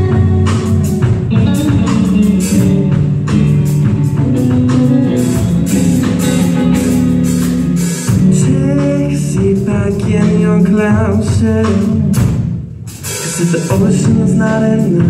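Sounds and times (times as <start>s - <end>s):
live rock band playing: 0.0s - 15.0s.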